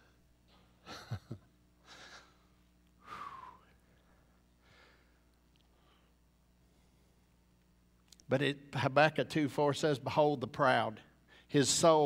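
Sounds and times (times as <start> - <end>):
man breathing: 1.8 - 7.4, 11.2 - 11.5.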